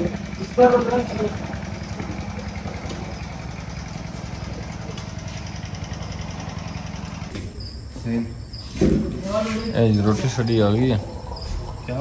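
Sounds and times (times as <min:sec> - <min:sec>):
engine idling: 0:00.0 - 0:08.5.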